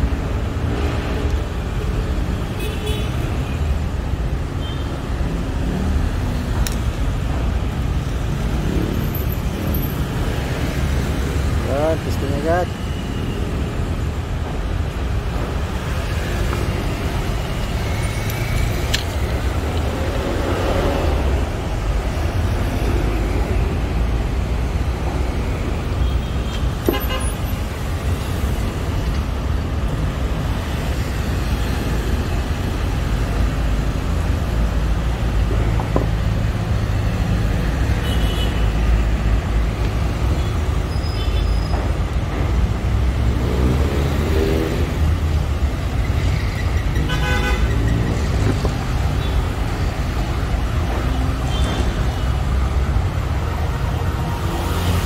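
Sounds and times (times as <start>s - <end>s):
car horn toots: 47.0s - 47.7s.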